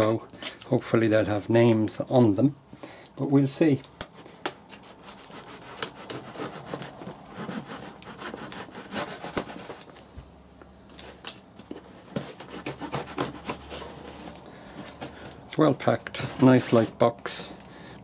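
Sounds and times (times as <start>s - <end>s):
blade cutting packing tape: 12.3s - 14.2s.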